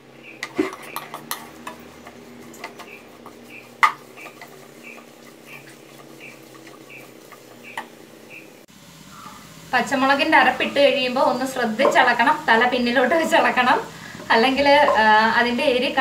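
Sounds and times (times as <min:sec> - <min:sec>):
spatula knocking against pan: 0:00.4 - 0:08.0
spatula scraping a pan: 0:00.4 - 0:08.0.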